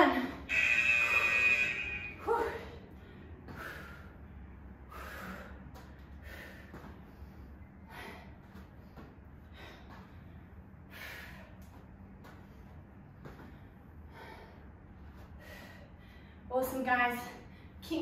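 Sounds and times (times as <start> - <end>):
woman breathing hard: 2.6 - 16.5.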